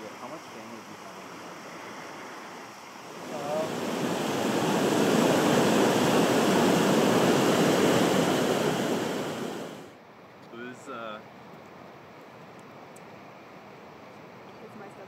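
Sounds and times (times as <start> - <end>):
steady rushing noise: 0.0 - 10.0.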